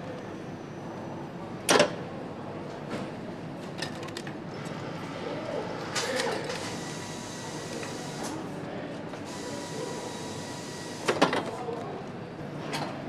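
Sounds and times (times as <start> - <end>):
factory machinery humming: 4.5 - 11.4.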